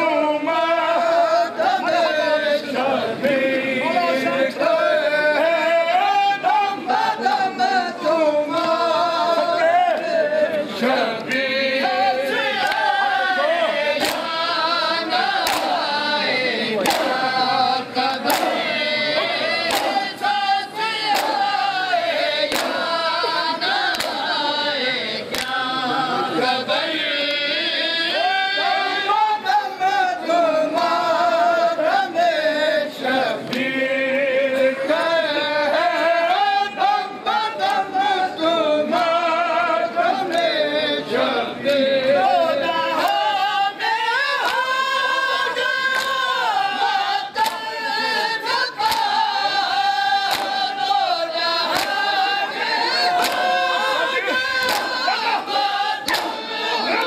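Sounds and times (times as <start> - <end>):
men chanting in chorus: 0.0 - 57.0
chest-beating slaps: 14.0 - 14.4, 15.4 - 15.9, 16.8 - 17.3, 18.2 - 18.8, 19.6 - 20.1, 21.0 - 21.6, 22.5 - 23.0, 23.8 - 24.3, 50.2 - 50.7, 53.1 - 53.5, 54.6 - 55.0, 56.0 - 56.4.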